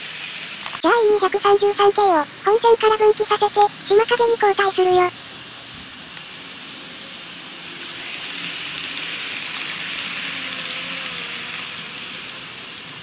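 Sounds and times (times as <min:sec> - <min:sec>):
faint motor whine: 0:05.2 - 0:13.0.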